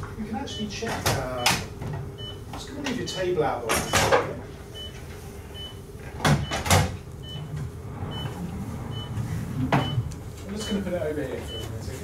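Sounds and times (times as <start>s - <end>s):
patient monitor beeping: 0.4s - 12.0s
wheeled table rolling on floor: 7.2s - 10.2s.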